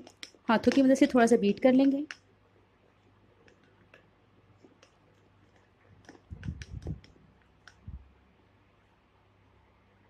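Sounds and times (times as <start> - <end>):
hand beating batter in bowl: 0.0 - 1.0, 3.4 - 8.1.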